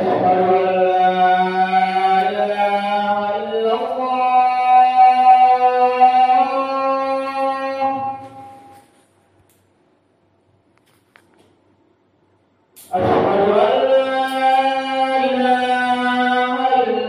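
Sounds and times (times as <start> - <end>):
person chanting: 0.0 - 8.9, 12.9 - 17.0.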